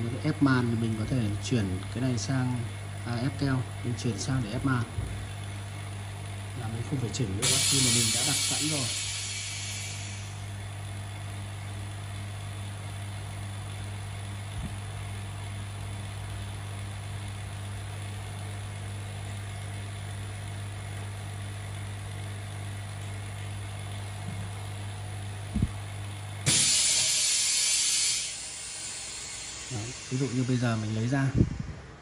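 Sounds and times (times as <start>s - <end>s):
vacuum pump motor hum: 0.0s - 32.0s
loud hiss of air: 7.4s - 10.5s, 26.4s - 32.0s.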